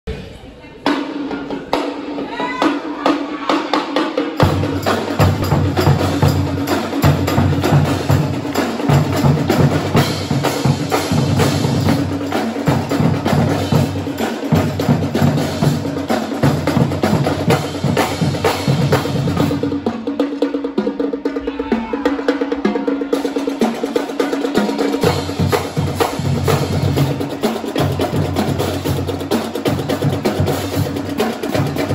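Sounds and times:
snare drums: 0.8s - 31.9s
tenor drums: 0.8s - 31.9s
bass drums: 4.4s - 20.0s.

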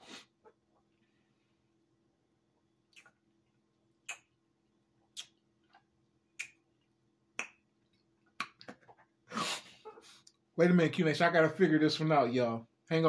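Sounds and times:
lip and tongue smacks: 2.9s - 3.2s, 4.0s - 4.4s, 5.0s - 6.7s, 7.4s - 9.1s.

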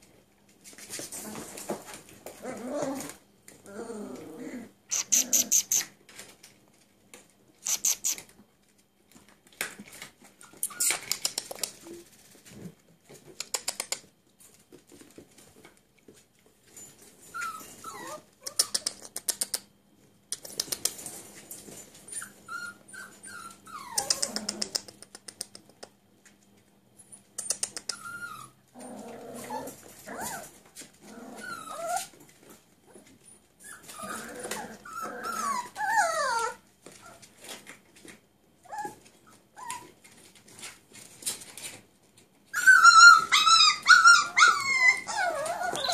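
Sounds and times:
puppies growling: 1.1s - 5.9s, 17.4s - 19.1s, 22.4s - 25.0s, 27.6s - 37.2s, 42.5s - 45.9s
puppies whining and yelping: 10.4s - 11.2s, 17.3s - 18.9s, 22.0s - 24.8s, 27.0s - 37.3s, 38.6s - 40.1s, 42.4s - 45.9s.

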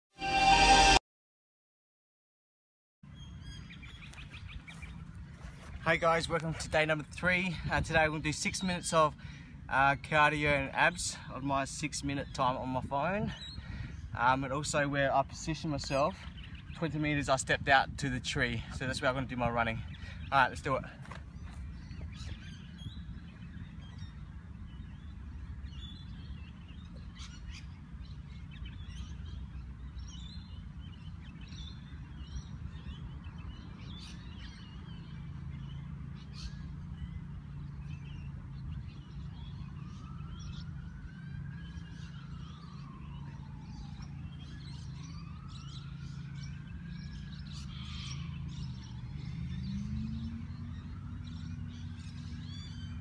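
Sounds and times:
whistle-like rising tone: 0.1s - 1.0s
birds chirping: 3.1s - 53.0s.

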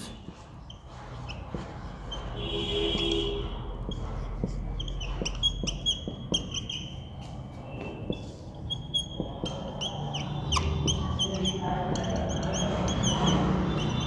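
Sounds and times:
whiteboard marker squeaking: 0.0s - 14.0s.

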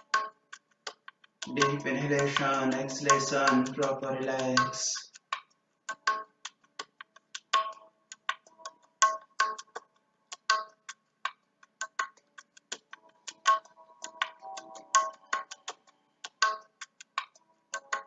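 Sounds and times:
sharp ringing ticks: 1.4s - 6.3s, 12.1s - 18.0s.

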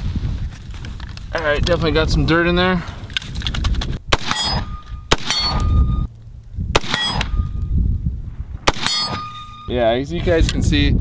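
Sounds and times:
rifle shots: 4.1s - 6.0s, 6.7s - 7.6s, 8.6s - 9.7s
steel target clanging: 4.2s - 6.1s, 6.8s - 7.6s, 8.7s - 10.0s.

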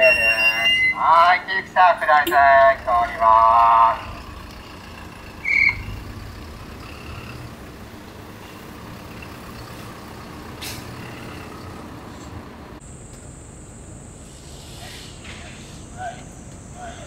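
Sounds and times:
short high beep: 0.0s - 1.0s
truck engine humming: 0.0s - 17.0s
air hiss: 14.2s - 15.9s.

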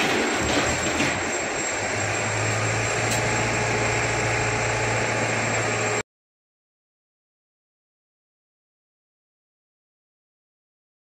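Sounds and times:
crane diesel engine running: 0.0s - 6.0s
deep steady hum: 0.8s - 6.0s.

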